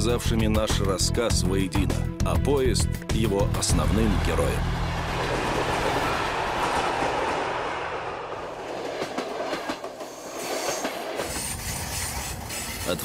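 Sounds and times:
train cars rushing past: 3.9 - 13.0.

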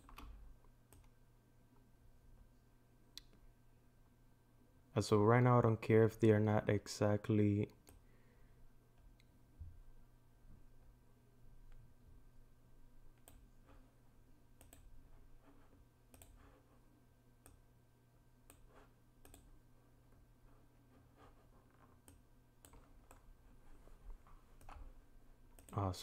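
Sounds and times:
computer mouse clicks: 0.0 - 1.2, 13.1 - 13.5, 14.6 - 14.9, 16.1 - 16.5, 18.4 - 19.5, 21.8 - 23.3, 25.5 - 25.8
low steady hum: 0.0 - 26.0.

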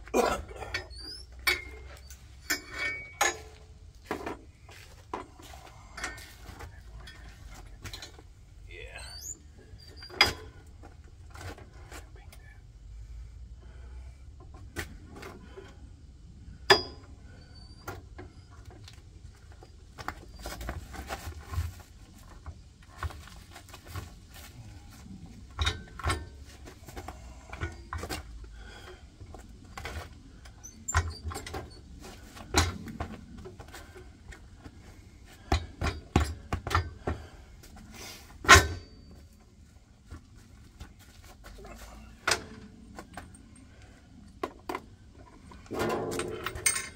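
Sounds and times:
metal clanks and clinks: 0.4 - 8.4, 9.9 - 10.7, 16.6 - 17.2, 24.7 - 29.0, 29.6 - 33.4, 35.4 - 37.2, 38.4 - 39.4, 41.5 - 46.9.

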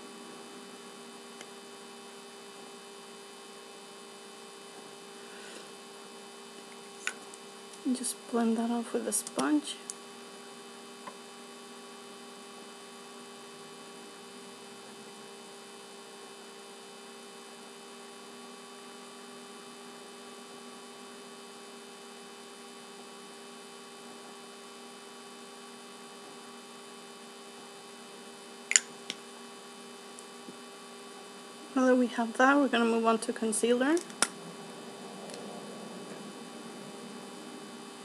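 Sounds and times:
steady electrical hum: 0.0 - 38.0.

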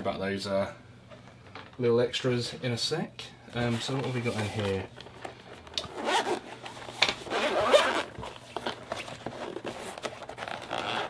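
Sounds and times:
handling of a case: 3.7 - 11.0
zipper being pulled open: 5.8 - 8.8, 9.4 - 11.0.

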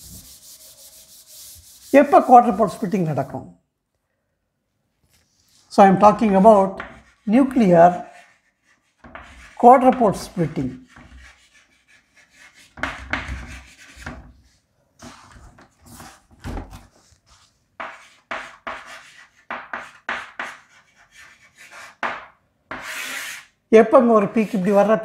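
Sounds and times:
pen scratching on paper: 6.8 - 14.3, 17.3 - 22.1, 22.7 - 23.5.

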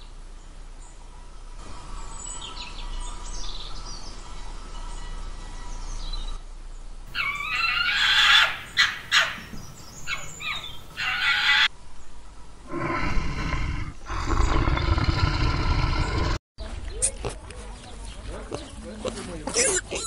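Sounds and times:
small birds chirping: 1.9 - 19.2
toucan rasping calls: 7.1 - 11.7.

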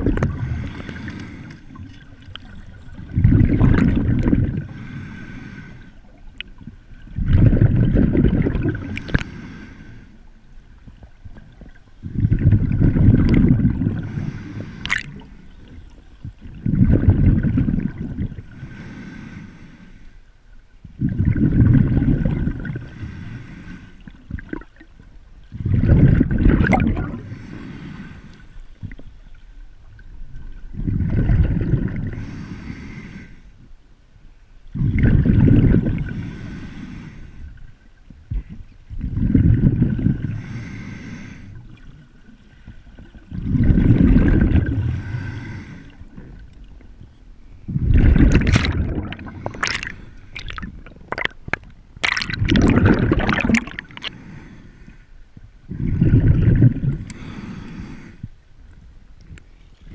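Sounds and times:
exhaled bubbles rumbling underwater: 0.0 - 19.3, 20.7 - 32.9, 34.6 - 59.9.

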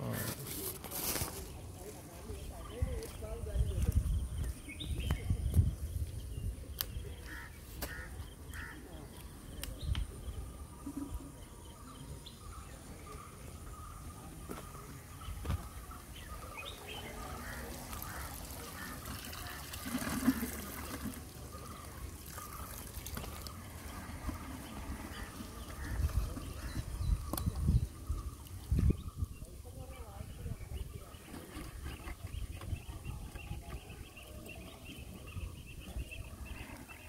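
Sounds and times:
water splashing: 17.0 - 26.7.

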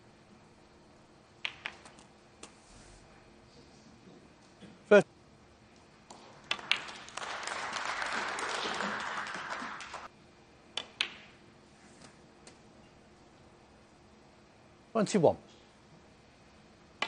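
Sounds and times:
snooker balls clicking: 1.4 - 2.5, 5.8 - 7.2, 10.8 - 11.4
audience applauding: 6.2 - 10.1.

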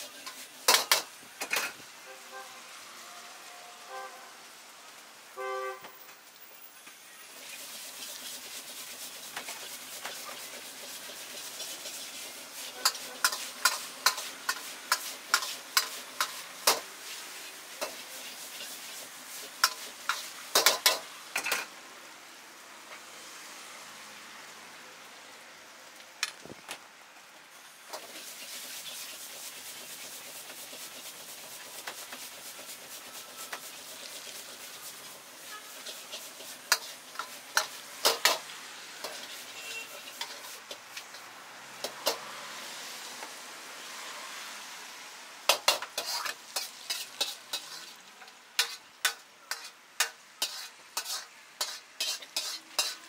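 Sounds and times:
noodles sizzling in a wok: 0.0 - 26.2, 26.9 - 53.0
short horn-like toot: 2.0 - 4.4, 5.4 - 5.9, 39.6 - 40.0
ladle clanking on wok: 19.6 - 21.7, 35.7 - 41.2.

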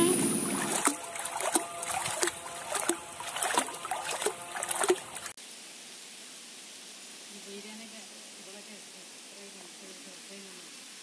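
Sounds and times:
feet splashing in water: 0.0 - 5.4
steady hiss: 5.4 - 11.0.

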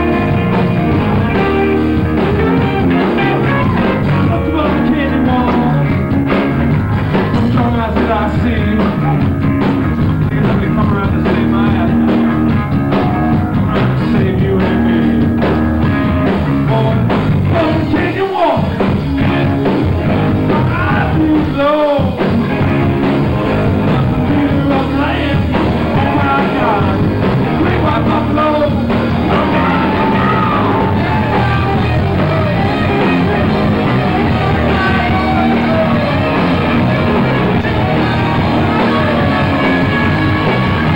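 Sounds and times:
live rock band playing: 0.0 - 40.9.

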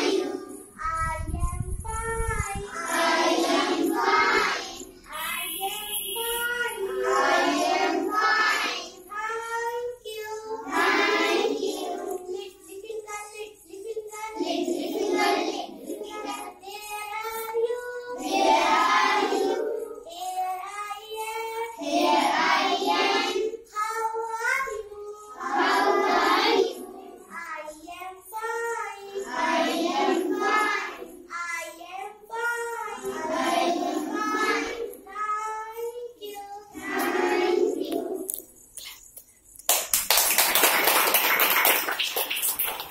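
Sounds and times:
young children singing in unison: 0.0 - 38.6.

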